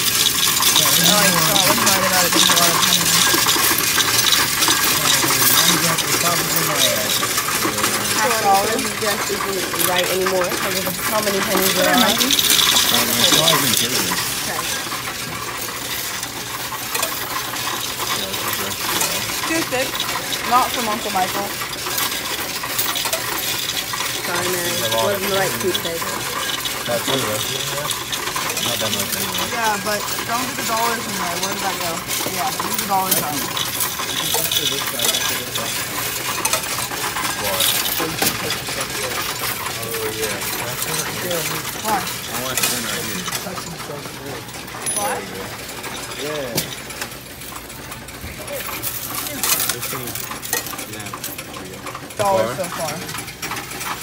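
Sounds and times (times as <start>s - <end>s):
coins clattering through counter: 0.0s - 54.0s.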